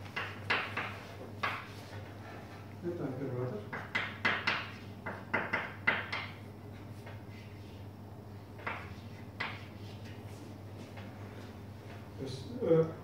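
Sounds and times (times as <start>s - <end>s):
chalk scratching on blackboard: 8.7s - 10.4s.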